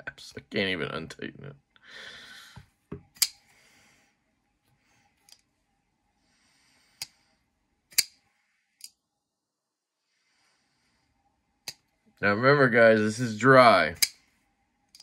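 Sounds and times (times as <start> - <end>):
folding knife blade clicks: 3.2 - 3.4, 7.9 - 8.2.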